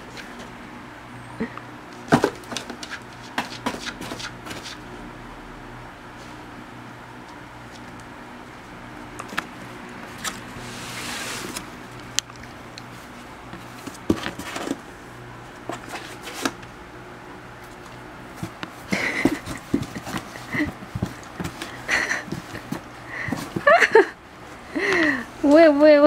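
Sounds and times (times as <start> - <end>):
low steady hum: 0.0 - 26.0
knocks and scrapes on cardboard box: 2.1 - 4.8, 13.8 - 14.8.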